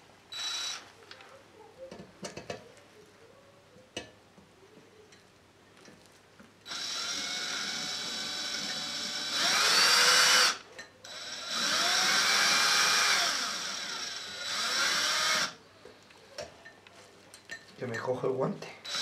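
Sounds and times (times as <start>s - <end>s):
cordless drill driving screw: 0.4s - 0.8s, 6.7s - 15.6s.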